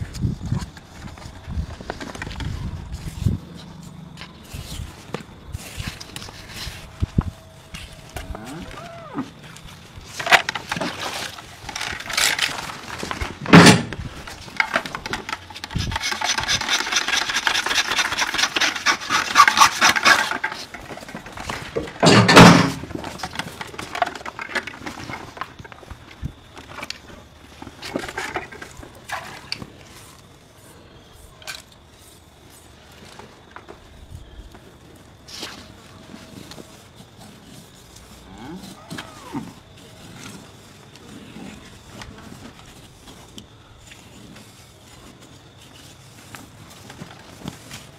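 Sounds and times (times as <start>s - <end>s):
knife scraping hide: 15.6s - 20.8s.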